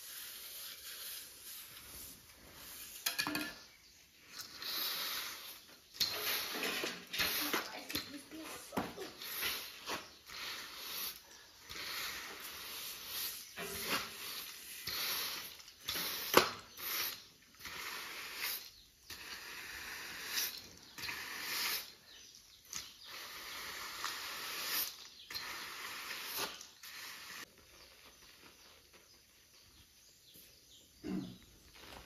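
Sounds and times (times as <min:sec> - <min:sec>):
mortar scraping on floor: 0:00.0 - 0:22.2.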